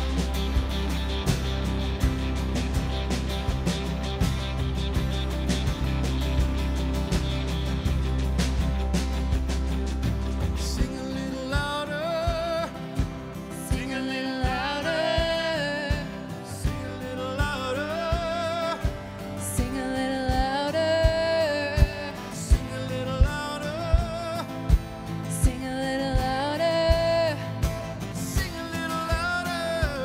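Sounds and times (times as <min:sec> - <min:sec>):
band playing: 0:00.0 - 0:30.0
steady drum beat: 0:00.0 - 0:30.0
person singing: 0:13.6 - 0:24.6, 0:25.3 - 0:30.0.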